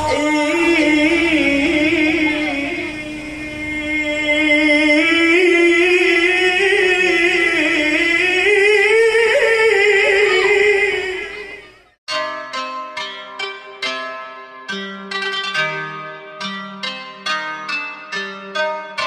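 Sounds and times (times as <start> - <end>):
man reciting melodically: 0.0 - 11.8.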